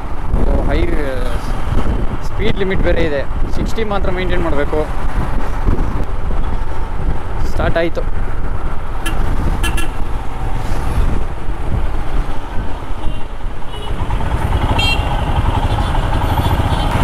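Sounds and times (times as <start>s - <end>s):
road rumble: 0.0s - 17.0s
vehicle horn toots: 9.0s - 10.0s, 13.0s - 14.0s, 14.6s - 17.0s
motorcycle engine running: 13.1s - 17.0s.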